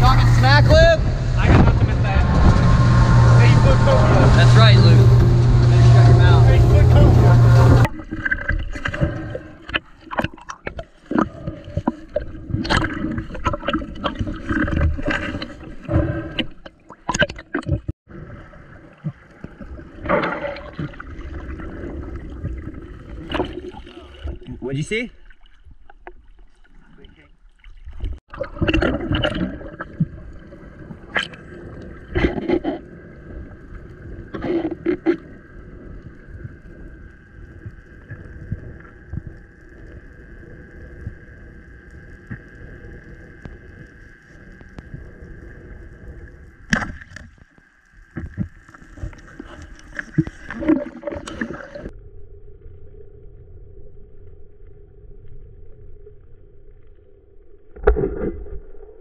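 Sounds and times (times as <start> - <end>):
splashy bursts: 0.0 - 16.4
underwater two-tone hum: 0.0 - 59.0.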